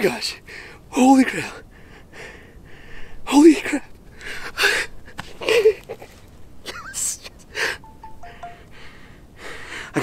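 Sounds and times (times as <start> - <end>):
man breathing hard: 1.6 - 3.2, 8.7 - 10.0
short beeps: 7.9 - 8.7.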